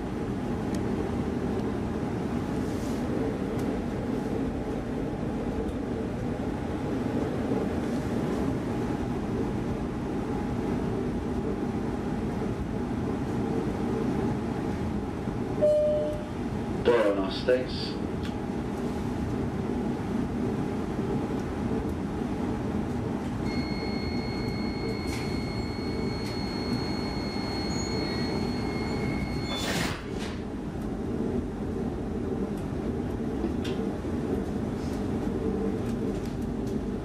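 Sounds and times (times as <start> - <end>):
train low hum: 0.0 - 37.0
high warning tone: 15.6 - 16.4, 23.4 - 29.9.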